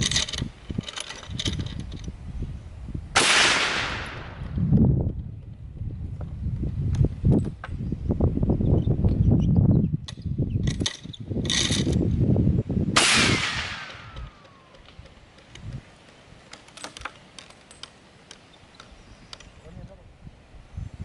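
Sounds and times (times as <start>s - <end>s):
metallic clicks and rattles: 0.0s - 2.2s, 10.0s - 12.0s, 14.1s - 19.6s
rifle shot hitting a padlock: 3.2s - 4.4s, 13.0s - 14.5s
ricochet whine: 3.2s - 4.6s, 12.9s - 15.6s.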